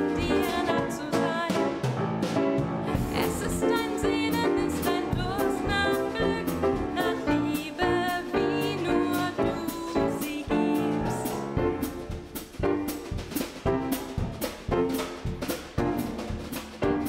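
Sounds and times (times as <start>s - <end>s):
woman singing: 0.0s - 1.8s, 2.9s - 11.4s
drum kit with cymbals: 0.0s - 17.0s
grand piano: 0.0s - 17.0s.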